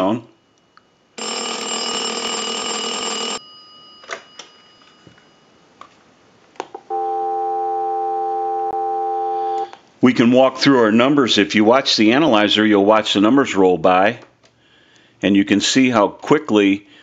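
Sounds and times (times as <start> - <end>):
telephone bell ringing: 1.1 - 5.8, 6.9 - 9.7
telephone dial tone: 1.2 - 3.4, 6.9 - 9.7.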